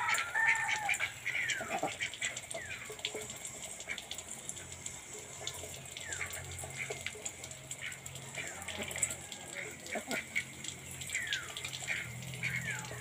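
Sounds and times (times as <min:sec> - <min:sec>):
ducks splashing in water: 0:00.0 - 0:13.0.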